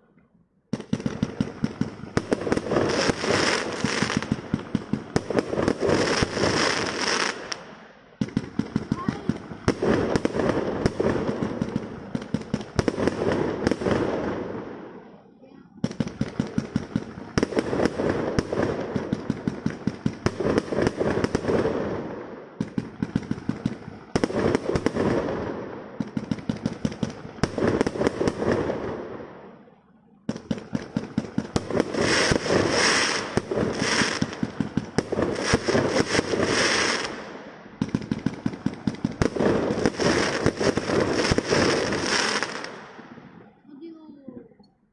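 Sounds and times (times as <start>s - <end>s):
firework bangs: 0.7s - 29.6s, 30.2s - 43.7s
fireworks crackling hiss: 0.8s - 29.5s, 30.4s - 44.6s.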